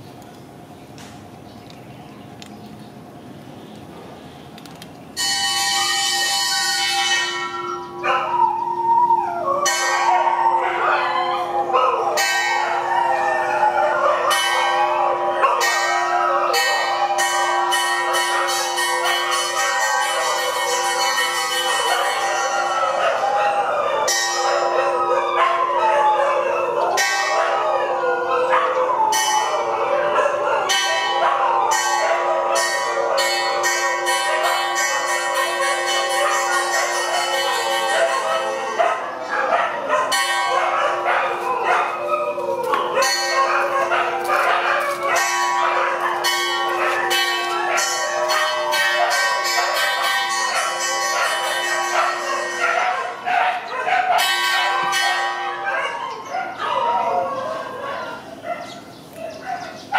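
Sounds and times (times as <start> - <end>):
bell-like chimed notes: 5.2 - 8.2, 9.6 - 10.6, 30.7 - 38.9, 42.9 - 53.1.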